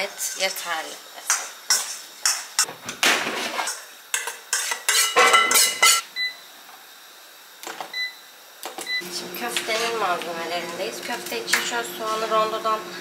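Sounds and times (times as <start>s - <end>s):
metal spoon scraping steel bowl: 4.5s - 6.0s.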